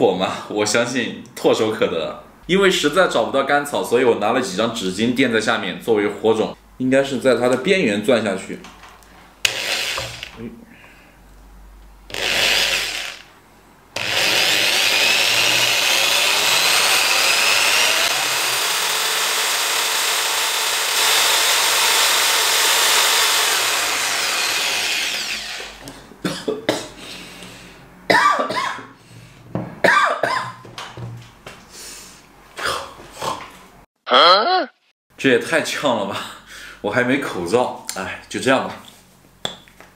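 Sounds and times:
electric drill running: 9.4 - 10.4, 12.1 - 13.3, 14.0 - 25.8
person coughing: 26.2 - 27.0, 28.1 - 29.0, 29.8 - 30.6.

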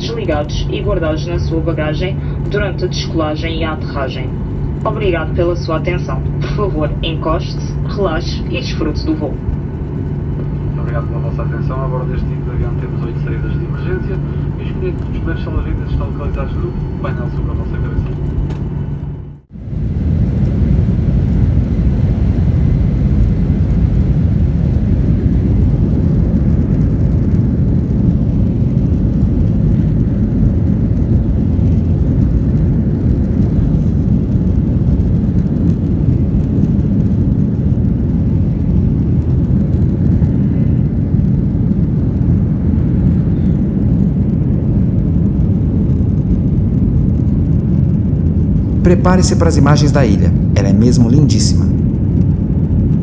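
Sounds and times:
jet engines at high thrust: 0.0 - 53.0
rushing air in cabin: 0.0 - 53.0.

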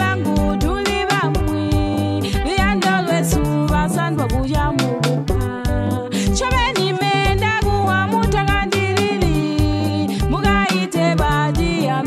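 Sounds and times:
popular song with singing: 0.0 - 12.0.

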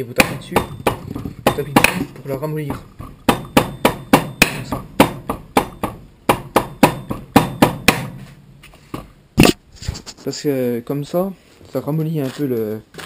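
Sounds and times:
hammer knocking on hose: 0.2 - 8.2.

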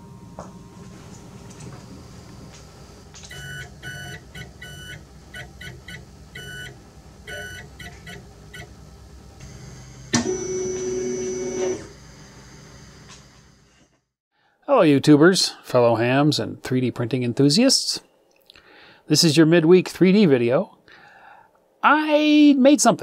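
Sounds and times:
buzzy morse code beeps: 3.3 - 8.7.

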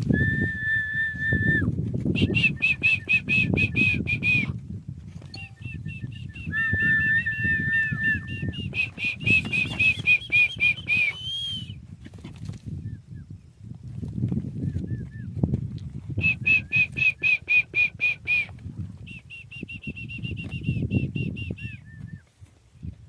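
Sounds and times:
held whistle: 0.1 - 4.5, 5.3 - 11.8, 16.2 - 22.3
high short whistled notes: 5.3 - 11.7.

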